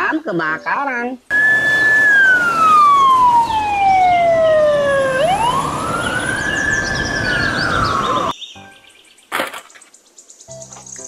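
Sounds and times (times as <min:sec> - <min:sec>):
fire engine siren wailing: 0:01.3 - 0:08.3.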